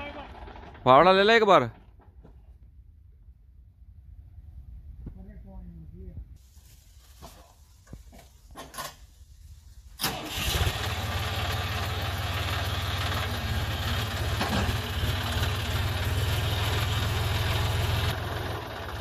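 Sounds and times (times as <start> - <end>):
tractor diesel engine running: 0.0 - 2.1, 10.0 - 19.0.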